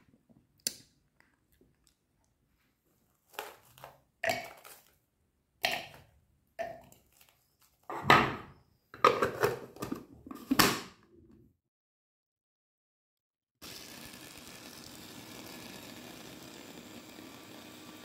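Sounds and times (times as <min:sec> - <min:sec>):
frozen fruit clunking into plastic bowl: 0:03.3 - 0:04.9.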